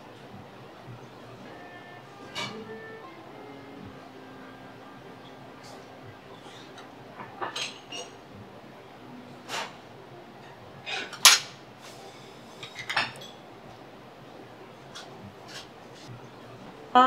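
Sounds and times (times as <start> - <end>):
dishes and utensils clinking: 2.2 - 2.8, 6.4 - 8.2, 10.9 - 13.4.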